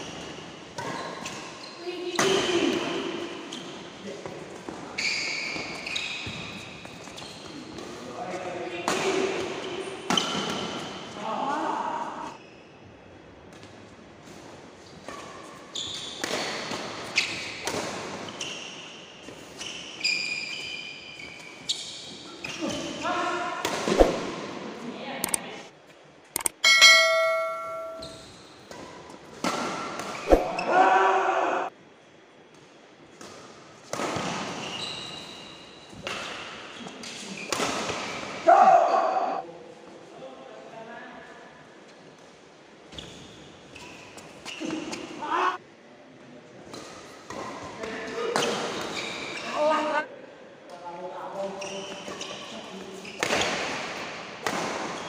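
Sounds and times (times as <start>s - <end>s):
shoes squealing on court: 5.0s - 7.6s, 15.7s - 16.5s, 18.3s - 22.8s, 34.6s - 35.6s, 48.4s - 49.6s.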